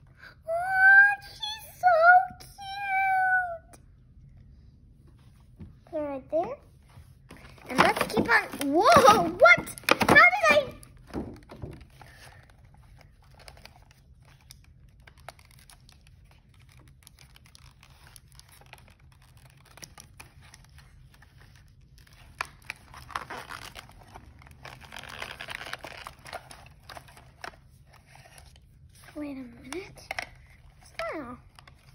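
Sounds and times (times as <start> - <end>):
packaging rustling and crinkling: 7.2 - 31.9.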